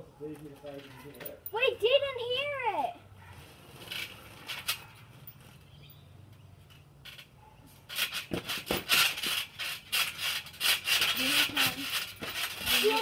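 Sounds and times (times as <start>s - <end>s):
trampoline thuds and creaks: 3.3s - 13.0s.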